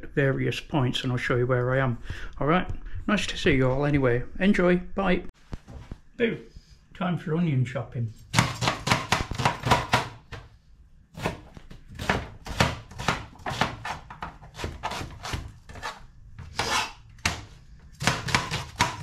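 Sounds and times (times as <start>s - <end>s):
knife chopping on plastic board: 8.3s - 10.4s, 11.2s - 19.0s.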